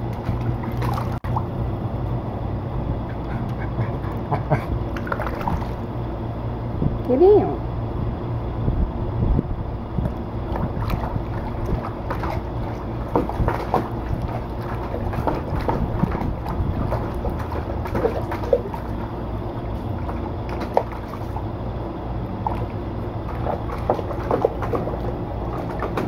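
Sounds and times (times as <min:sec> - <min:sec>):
dog splashing in water: 0:00.0 - 0:01.4, 0:04.9 - 0:05.8, 0:10.4 - 0:21.5, 0:22.4 - 0:26.0
steady low rumble: 0:00.0 - 0:26.0.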